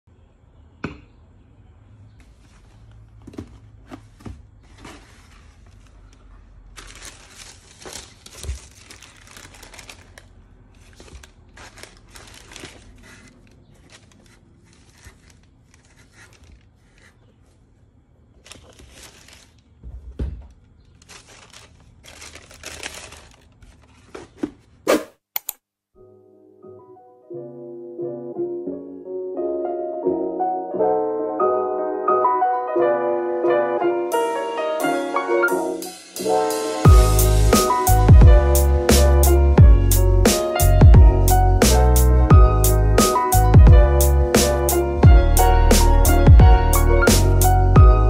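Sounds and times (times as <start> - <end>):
tissue paper crinkling: 4.6 - 17.6, 18.4 - 19.8, 20.9 - 24.4.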